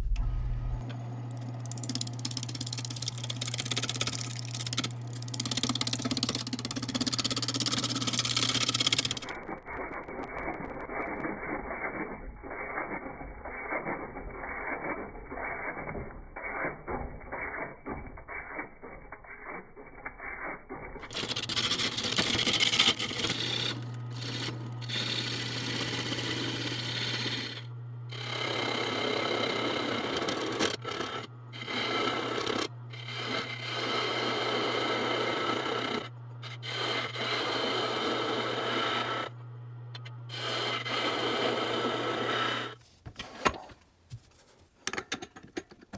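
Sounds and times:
lathe motor hum: 0.0s - 9.5s, 21.1s - 42.8s
lathe tool scraping wood: 1.3s - 39.4s, 40.0s - 42.8s.

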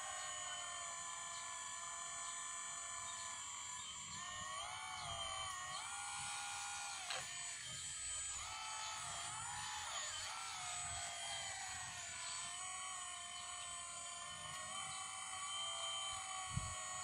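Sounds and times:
hydraulic pump whining: 0.0s - 17.0s.

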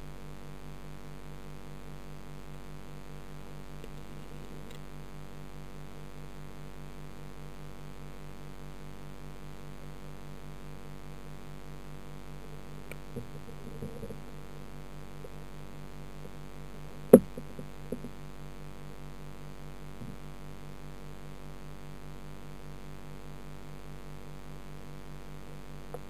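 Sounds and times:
aquarium pump hum underwater: 0.0s - 26.0s
soft taps: 17.1s - 18.1s
sharp knock: 17.2s - 18.1s.

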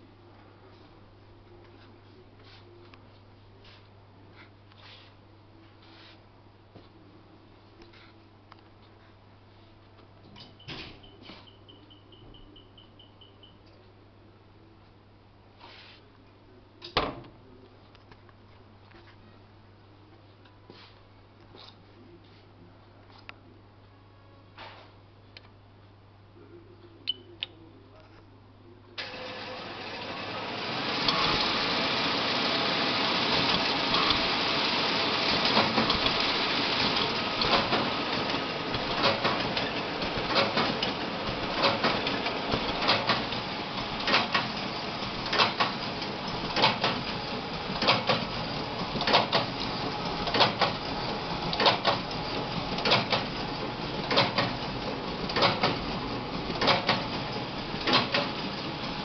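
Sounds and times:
sheet-feed mechanism clacking: 32.6s - 59.0s.

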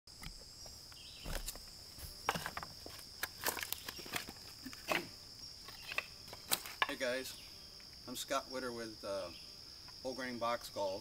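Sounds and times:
high insect drone: 0.1s - 11.0s
footsteps on loose stones: 0.2s - 7.0s.

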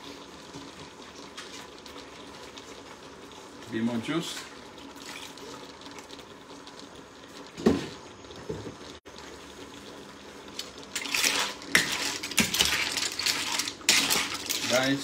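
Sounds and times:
shells clattering in a pan: 10.6s - 15.0s
metal spoon scraping a pan: 11.0s - 15.0s.

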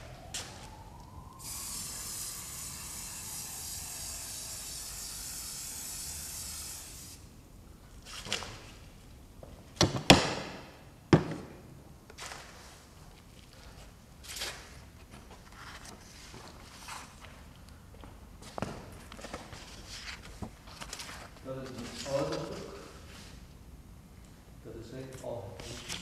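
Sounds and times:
aerosol spray can hissing: 1.4s - 7.2s.

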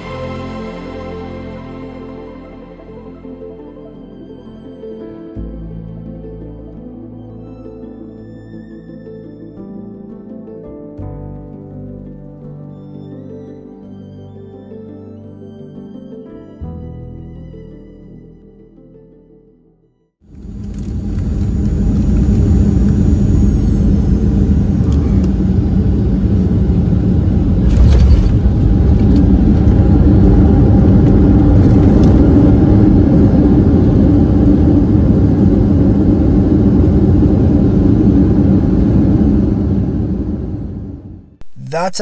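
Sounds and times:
airplane landing rumble: 20.3s - 41.6s
loud jolt: 27.6s - 28.7s.

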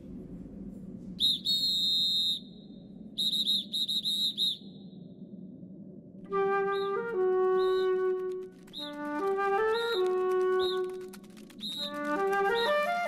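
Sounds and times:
steady low rumble: 0.0s - 9.7s
high-pitched whistle-like calls: 1.2s - 5.1s, 6.3s - 13.0s
flute tune: 6.2s - 13.0s.

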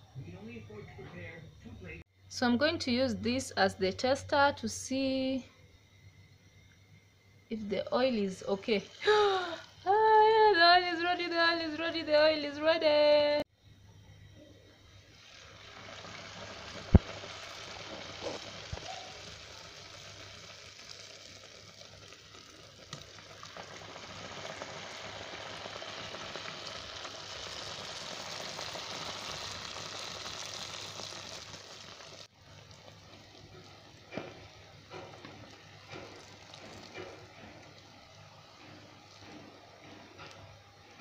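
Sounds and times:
dough sizzling in hot oil: 8.0s - 9.8s, 14.8s - 41.0s.

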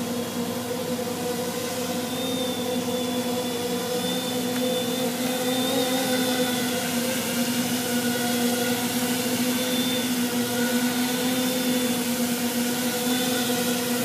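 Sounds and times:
thin high whine: 0.0s - 14.0s
drone propellers buzzing: 2.0s - 7.2s.

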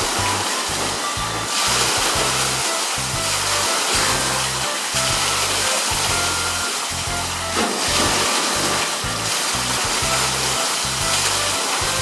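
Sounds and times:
water rushing and splashing: 0.0s - 12.0s
heavy splash of animal plunging: 7.5s - 10.6s.

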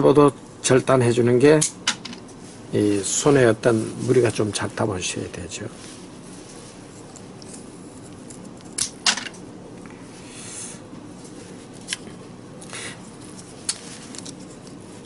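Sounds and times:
handling rustle: 11.1s - 15.0s.

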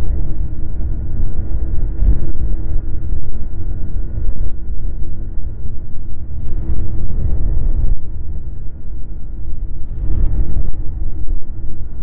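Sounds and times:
snowmobile engine rumble: 6.2s - 9.1s, 9.8s - 12.0s.

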